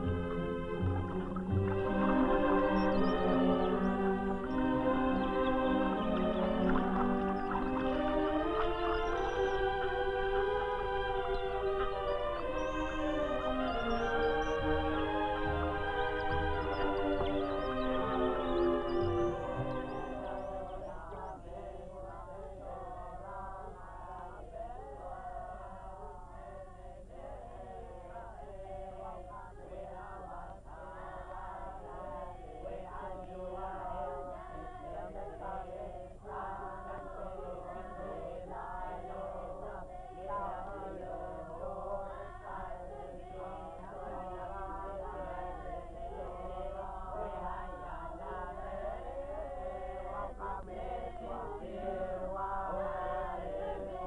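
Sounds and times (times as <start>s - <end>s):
choir chanting: 0.0s - 54.0s.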